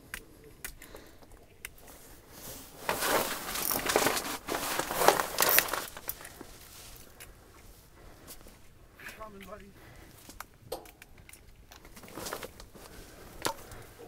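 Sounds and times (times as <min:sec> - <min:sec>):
clothing rustling on microphone: 0:01.8 - 0:10.4, 0:11.9 - 0:14.0.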